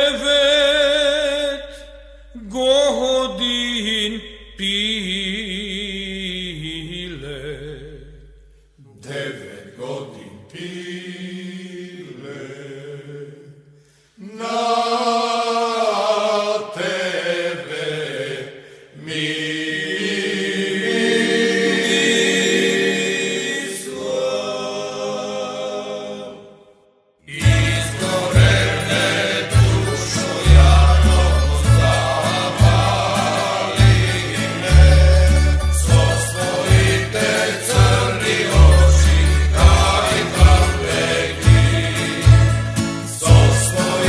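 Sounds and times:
men's chorus singing folk song: 0.0s - 1.8s, 8.9s - 13.6s, 14.2s - 26.5s, 27.3s - 44.0s
string orchestra playing: 27.5s - 44.0s.

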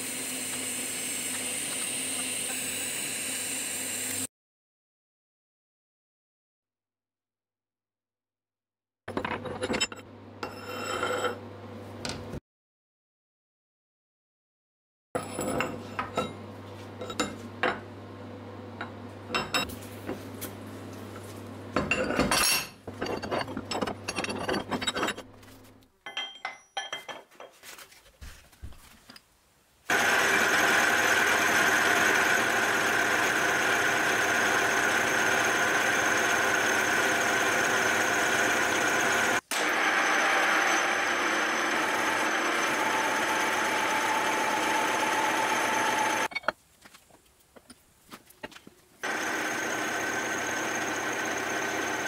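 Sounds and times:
milling machine cutting metal: 0.0s - 4.3s, 29.9s - 46.3s, 49.0s - 52.0s.

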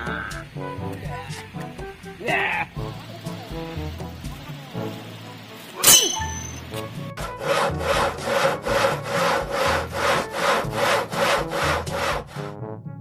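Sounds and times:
hand saw cutting wood: 5.8s - 6.6s, 7.2s - 12.5s.

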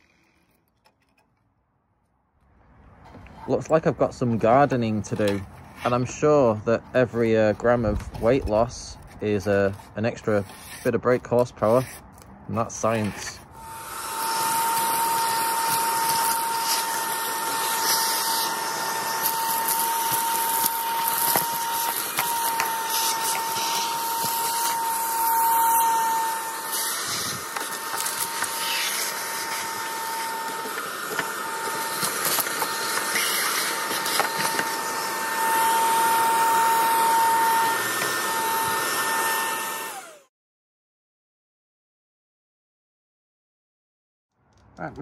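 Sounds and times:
nozzle sucking dirt: 3.2s - 39.9s
vacuum cleaner whistling: 13.6s - 40.3s.

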